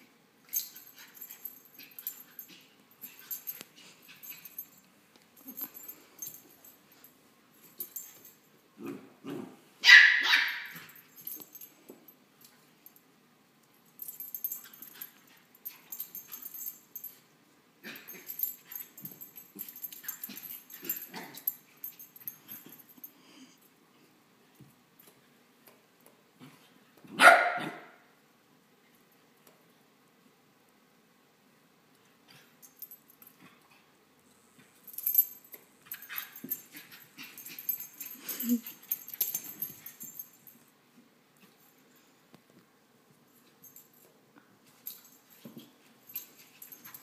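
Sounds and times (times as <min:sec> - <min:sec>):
dog barking: 0:09.8 - 0:10.7, 0:27.2 - 0:28.0.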